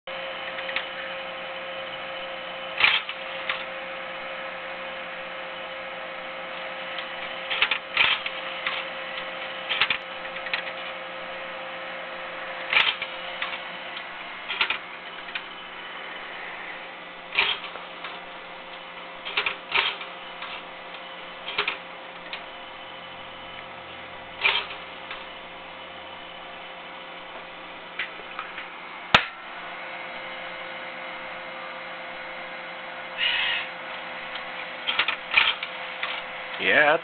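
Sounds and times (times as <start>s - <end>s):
cd drive humming: 0.1s - 37.0s
drive mechanical clicks and clunks: 12.7s - 15.6s, 17.3s - 22.6s, 34.3s - 36.6s.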